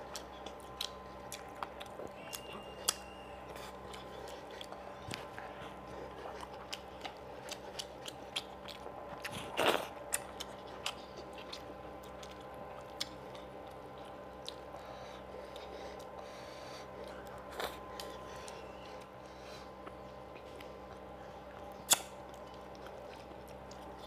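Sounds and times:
faint steady hum: 0.0 - 24.0
wet chewing and lip smacks: 0.0 - 24.0
short mouth clicks: 21.9 - 22.2.

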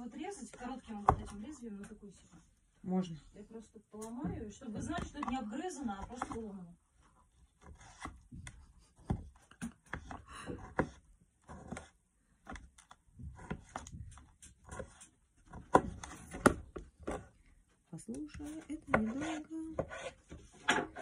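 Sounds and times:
blade knocking on plastic: 1.0 - 1.4, 4.2 - 6.5.

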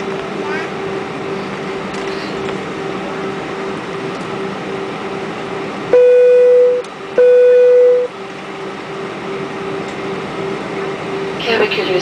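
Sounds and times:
airplane cabin hum: 0.0 - 12.0
faint pulsing tone: 5.9 - 8.1
long electronic beeps: 5.9 - 8.1.

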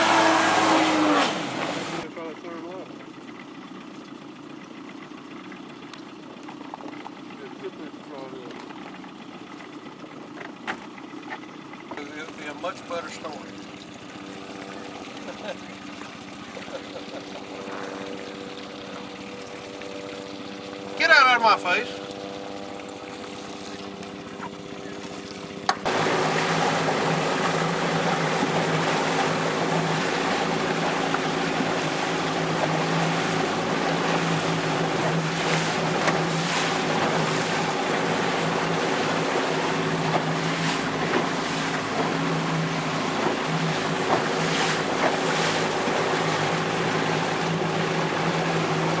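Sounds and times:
wind and water rushing: 0.0 - 2.1, 12.4 - 49.0
outboard motor humming: 0.0 - 49.0.

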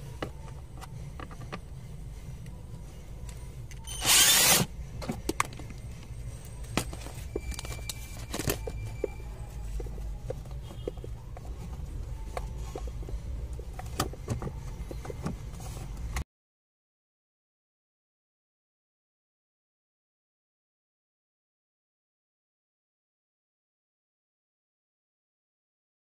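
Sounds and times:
steady low hum: 0.0 - 16.2.

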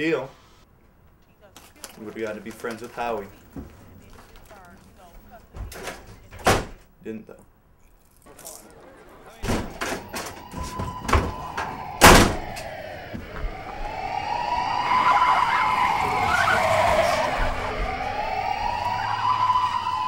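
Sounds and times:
police siren wailing: 8.3 - 20.0
loud thump: 9.4 - 13.5.

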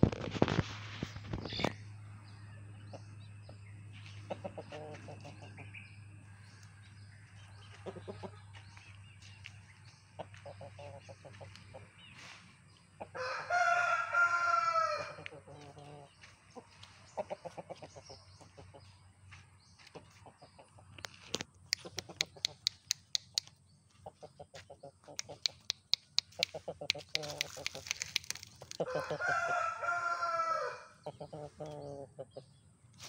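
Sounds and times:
steady low hum: 0.0 - 28.8
chicken clucks: 4.0 - 5.8, 7.3 - 9.4, 10.1 - 12.4, 15.2 - 19.0, 19.8 - 29.6, 31.0 - 32.6
rooster crowing: 13.2 - 15.2, 28.8 - 31.0
small clicks: 25.2 - 28.8.

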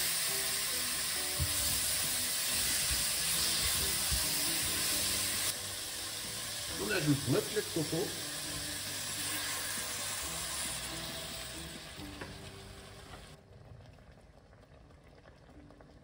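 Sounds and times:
food sizzling in a pot: 0.0 - 13.4
liquid pouring into a pot: 13.1 - 16.0.

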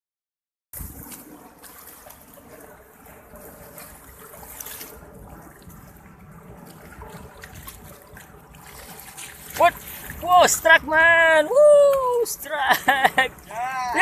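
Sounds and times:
waves lapping on rocks: 0.8 - 14.0.

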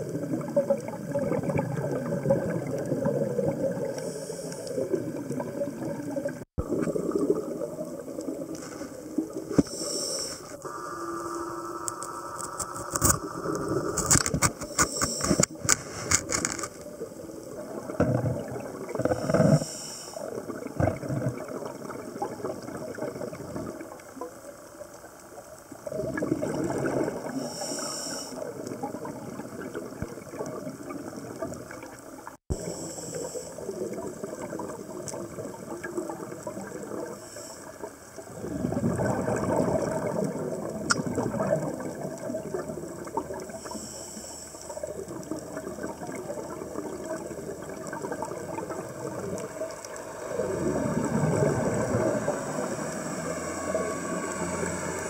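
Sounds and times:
regulator bubbles gurgling: 0.0 - 9.9, 10.5 - 15.7, 16.5 - 55.0
steady watery hiss: 0.0 - 55.0
underwater clicking: 38.7 - 43.5.

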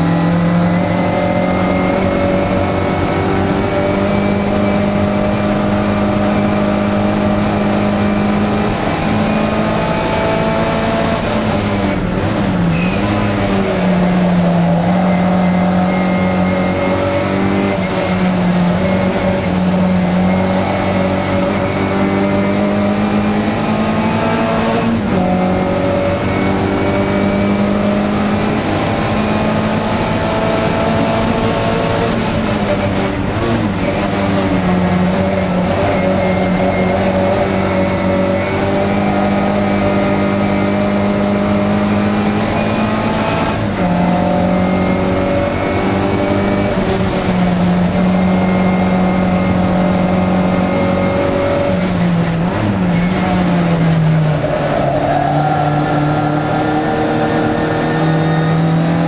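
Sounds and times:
car engine revving hard: 0.0 - 59.0.

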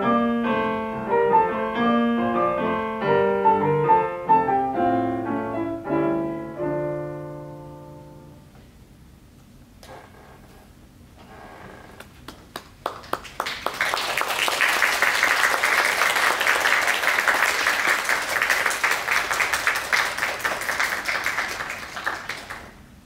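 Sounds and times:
audience applauding: 12.0 - 22.8.

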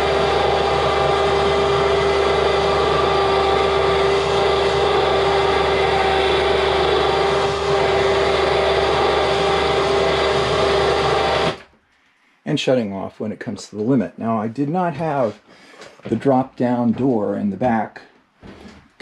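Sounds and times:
motor humming: 0.0 - 11.7.

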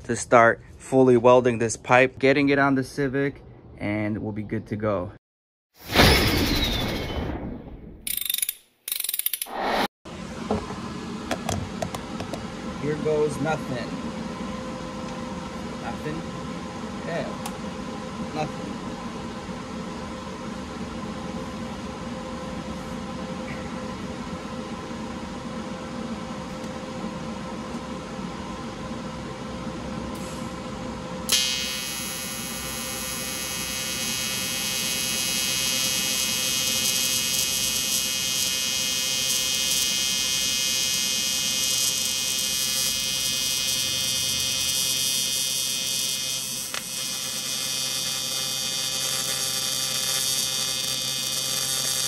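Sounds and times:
electrical hum: 10.1 - 52.0
welding arc buzzing: 31.3 - 52.0
welding arc striking crack: 31.3 - 52.0.

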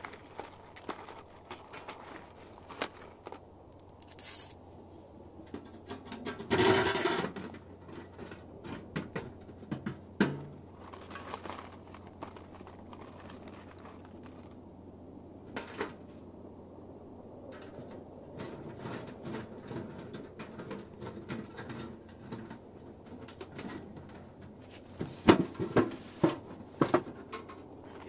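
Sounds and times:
rustling of tent groundsheet: 0.0 - 3.4, 10.7 - 14.6, 24.6 - 26.9
light metal clinks and scrapes: 0.0 - 5.0, 5.6 - 14.6.

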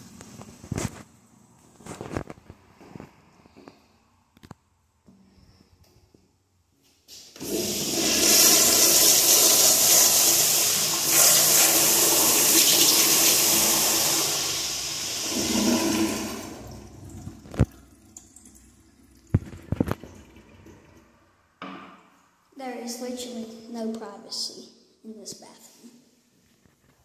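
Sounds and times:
toilet flushing: 7.1 - 21.6.

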